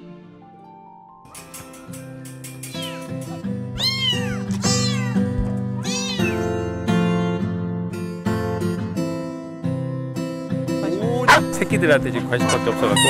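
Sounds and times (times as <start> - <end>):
background music: 0.0 - 13.0
kitten meowing: 2.7 - 6.6.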